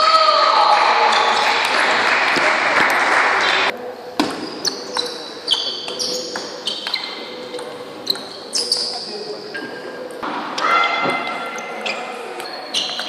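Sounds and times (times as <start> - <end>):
shoes squeaking on floor: 4.4 - 10.0, 11.6 - 13.0.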